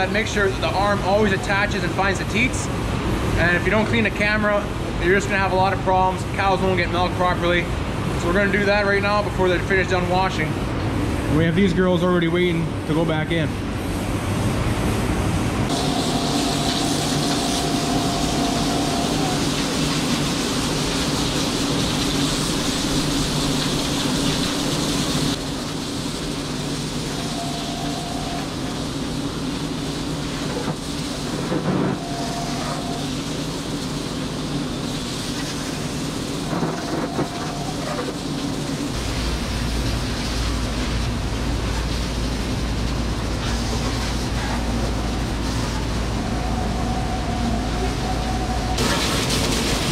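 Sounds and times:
deeper hum: 13.6 - 49.8
short steady tones: 15.7 - 19.9, 27.0 - 28.8, 31.8 - 33.3
milking robots humming: 15.7 - 20.0, 27.0 - 28.8, 31.9 - 33.3, 36.7 - 38.2
hose spraying water: 15.7 - 49.9.

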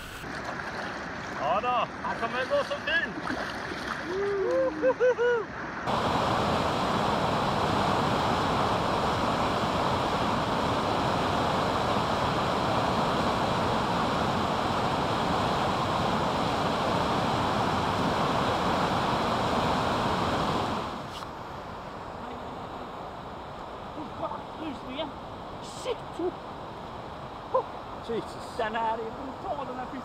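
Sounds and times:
river rapids rushing: 5.9 - 21.1.

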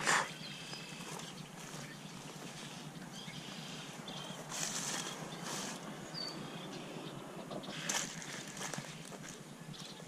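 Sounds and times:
outdoor background noise: 0.0 - 10.0
footsteps crunching through dry grass: 0.7 - 6.2, 7.7 - 9.9.

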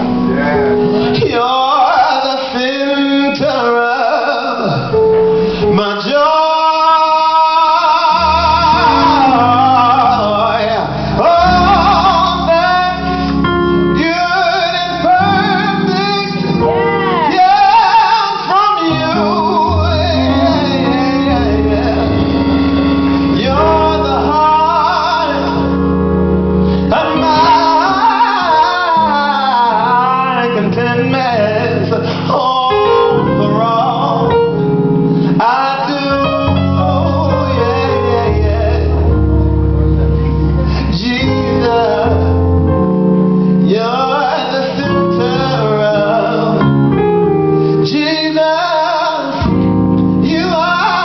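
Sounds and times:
man singing gospel: 0.0 - 51.0.

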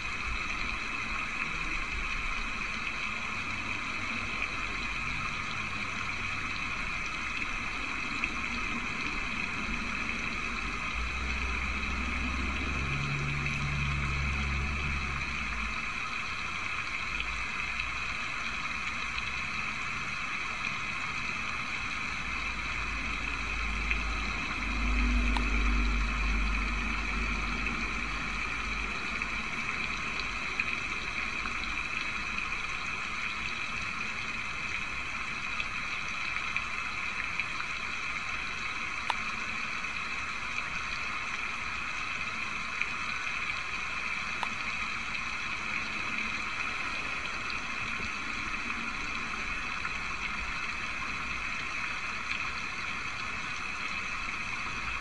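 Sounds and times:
faint ticks: 24.7 - 26.6, 39.0 - 39.3, 44.3 - 44.6.

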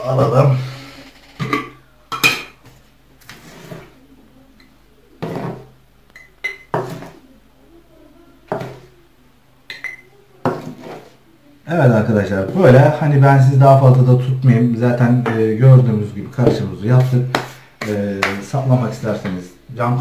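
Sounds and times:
metal spoon scraping paper: 3.2 - 4.0, 10.6 - 11.2.

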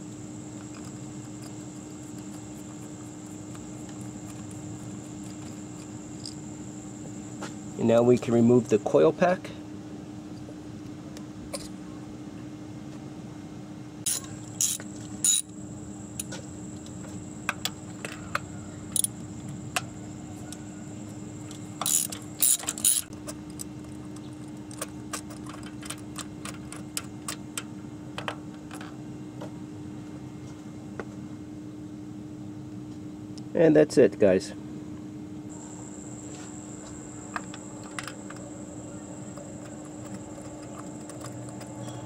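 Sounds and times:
steady low hum: 0.0 - 42.0
hand ratchet clicking: 14.1 - 15.4, 21.8 - 23.1.

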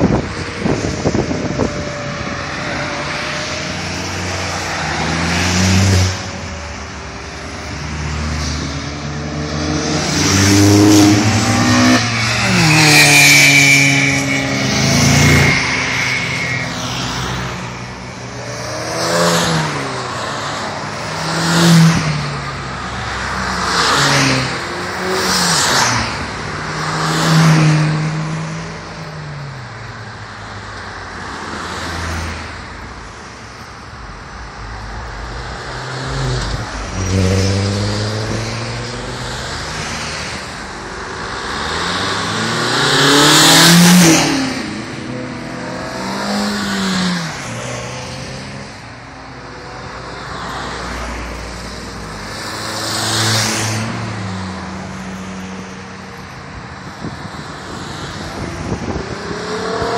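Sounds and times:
cars driving past: 0.0 - 59.9.

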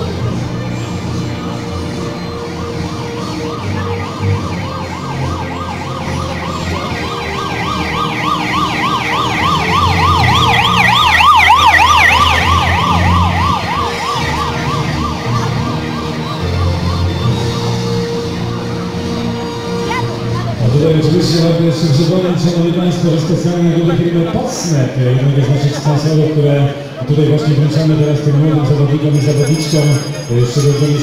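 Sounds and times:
motorcycle siren yelping: 0.0 - 23.2.

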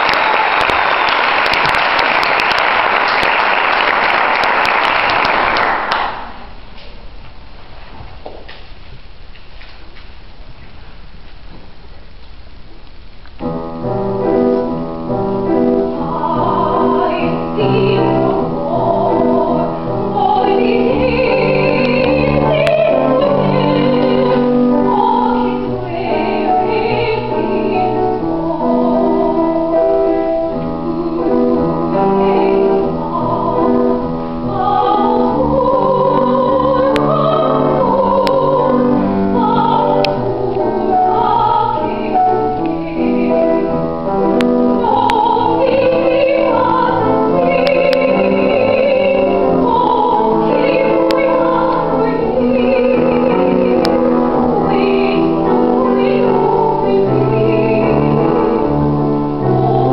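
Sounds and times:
grand piano playing: 13.4 - 59.9
woman singing classical style: 13.5 - 59.9.

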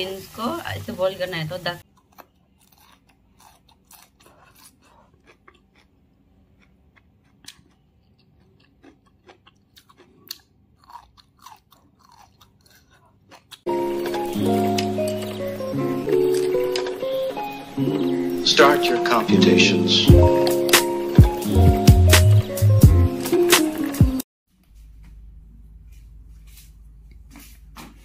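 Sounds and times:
chewing and crunching: 1.8 - 17.4
loud background music: 13.7 - 24.2.

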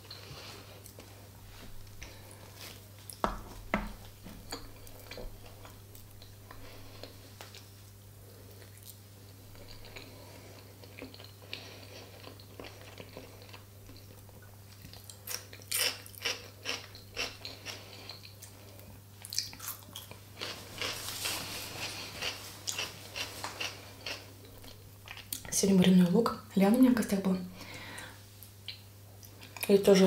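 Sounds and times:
faint steady hum: 0.0 - 30.0
person chewing food: 4.4 - 7.7, 8.4 - 25.5.

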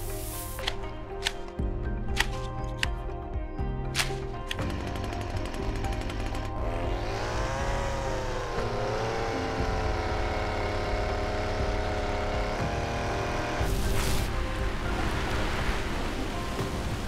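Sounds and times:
water spray hissing: 0.0 - 0.8, 13.7 - 14.4
string trimmer motor revving: 4.6 - 13.7.

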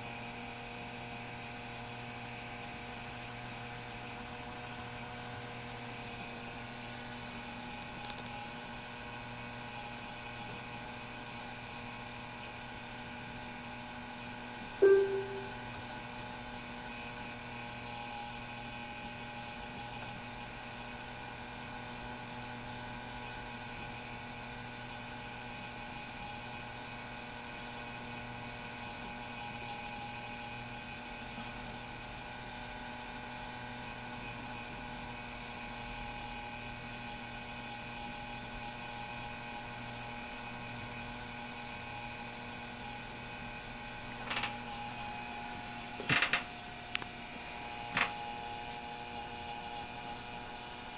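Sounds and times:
short click: 14.8 - 15.6.

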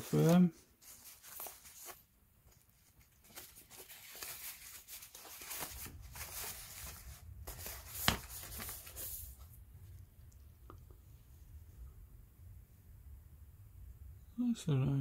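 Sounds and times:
foam packing sheet crinkling: 0.0 - 9.4.

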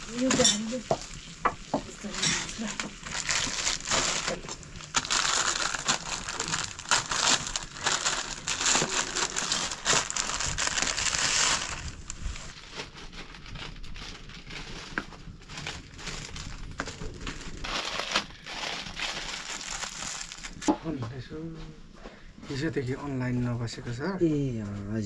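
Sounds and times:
water boiling hard: 0.0 - 12.5
wood fire crackling: 0.0 - 20.7.

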